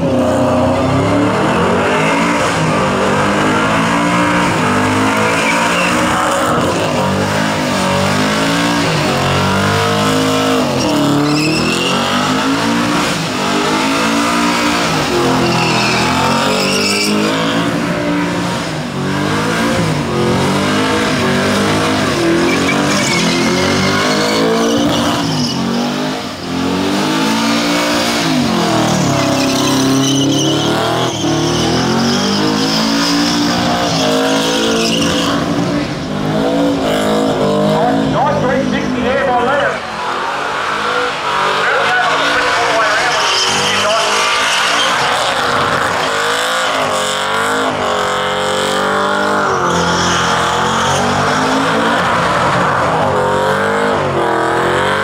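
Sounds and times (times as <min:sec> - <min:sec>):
engine revving: 0:00.0 - 0:55.0
tyres squealing: 0:05.2 - 0:06.9, 0:10.1 - 0:12.6, 0:14.4 - 0:17.7, 0:21.2 - 0:26.4, 0:28.4 - 0:35.5, 0:37.8 - 0:46.9.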